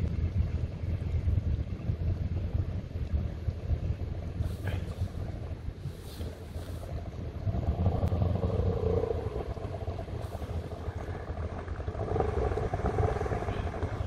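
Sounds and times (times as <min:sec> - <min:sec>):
outboard motor running: 0:06.2 - 0:14.0.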